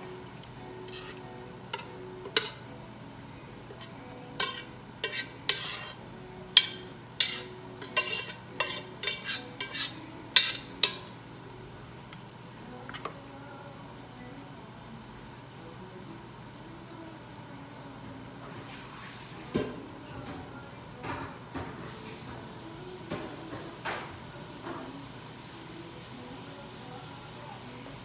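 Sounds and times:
metal spoon scraping a pot: 0.9 - 1.2, 3.7 - 6.0, 6.6 - 11.1.

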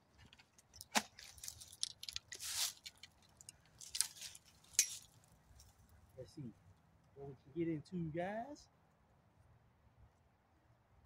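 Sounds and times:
rustling of handled objects: 0.0 - 6.1.

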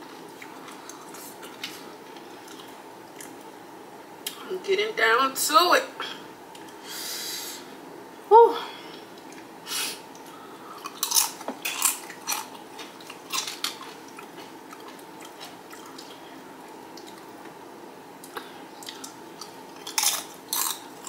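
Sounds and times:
tortilla chips crunching: 10.8 - 16.2, 18.8 - 21.0.

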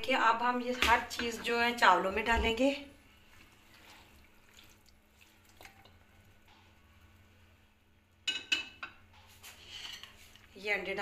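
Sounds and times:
spatula scraping frying pan: 9.4 - 10.4.

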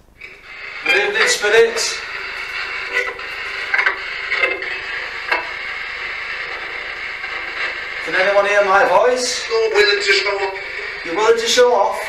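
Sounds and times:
radio static: 0.2 - 12.0
short radio blips: 0.2 - 12.0.

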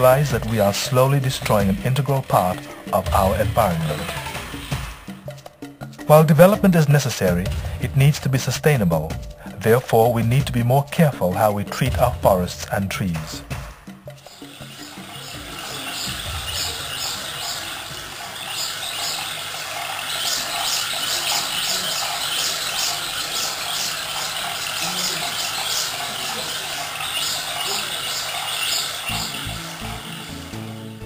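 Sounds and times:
high-pitched squealing chirps: 14.2 - 31.0.

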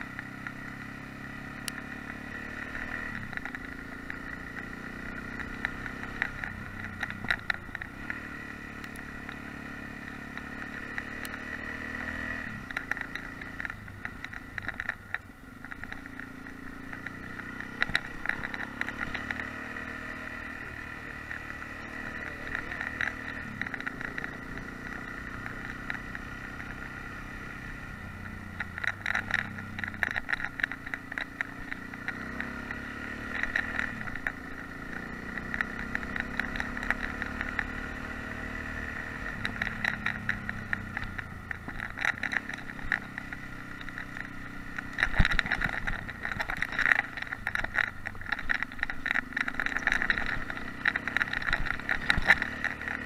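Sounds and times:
motorcycle engine revving: 0.0 - 53.0
clatter of loose stones: 12.2 - 53.0.

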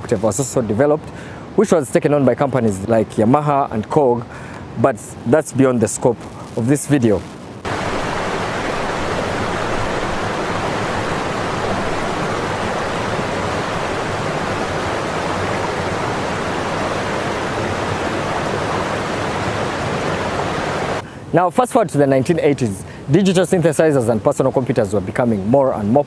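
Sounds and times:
whitewater rapids roaring: 7.7 - 21.0.

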